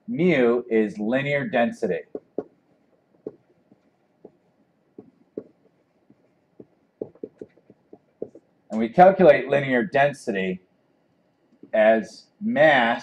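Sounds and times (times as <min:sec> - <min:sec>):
stylus tapping and scratching tablet: 0:01.8 - 0:08.8.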